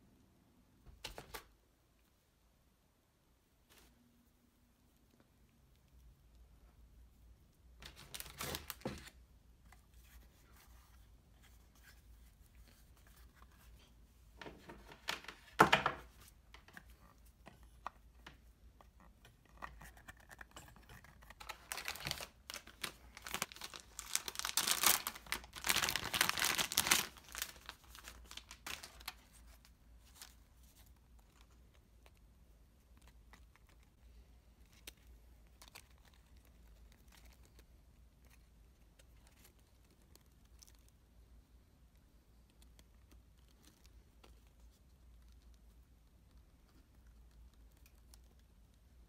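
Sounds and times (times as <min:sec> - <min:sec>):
foil bag crinkling and tearing: 0:07.8 - 0:09.0, 0:21.4 - 0:29.2
packaging rustling: 0:07.8 - 0:09.2, 0:19.6 - 0:30.4.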